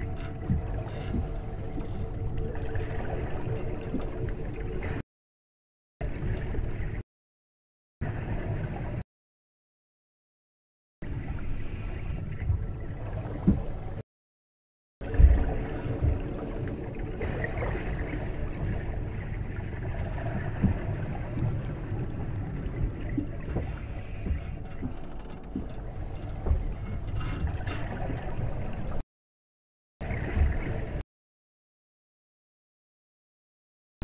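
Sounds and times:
aquarium water gurgling: 0.0 - 5.0, 6.0 - 7.0, 8.0 - 9.0, 11.0 - 14.0, 15.0 - 29.0, 30.0 - 31.0
faint pump hum: 0.0 - 5.0, 15.0 - 29.0.

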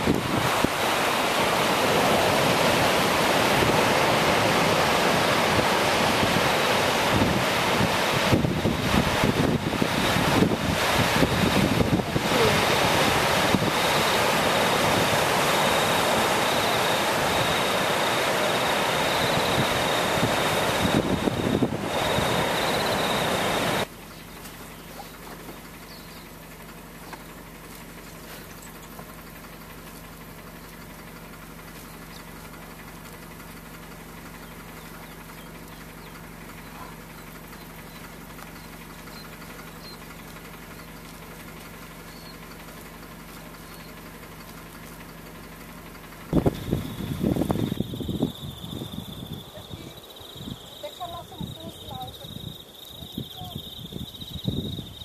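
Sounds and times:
ocean surf on beach: 0.0 - 23.9
faint high whine: 0.0 - 25.2, 45.9 - 55.0
engine idling hum: 0.0 - 55.0
wind buffeting microphone: 2.0 - 23.8, 46.3 - 55.0.

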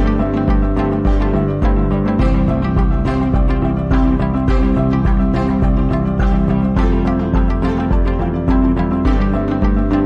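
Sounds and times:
music with steady bass beat: 0.0 - 10.0.

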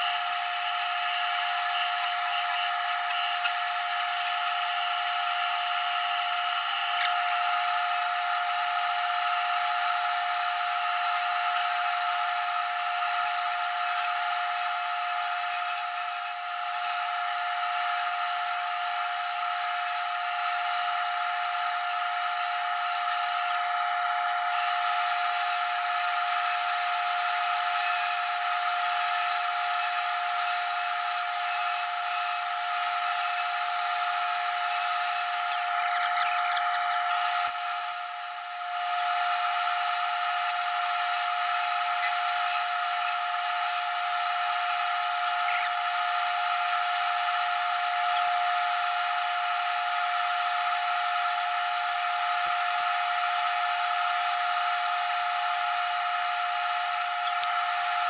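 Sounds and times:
lathe machinery whine: 0.0 - 58.0
gouge cutting wood on lathe: 0.1 - 26.5, 29.1 - 50.2.

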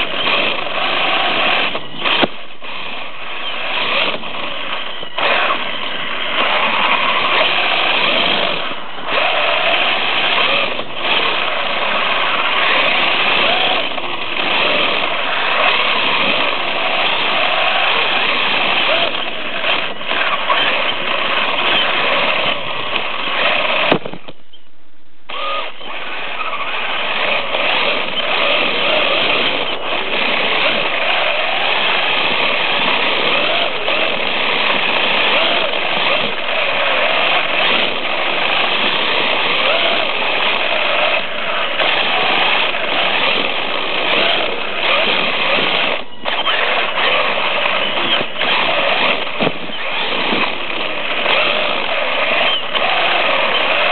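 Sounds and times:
rc truck electric motor running: 0.0 - 24.4, 25.3 - 53.9
sharp click: 1.7 - 2.5, 23.8 - 24.7.

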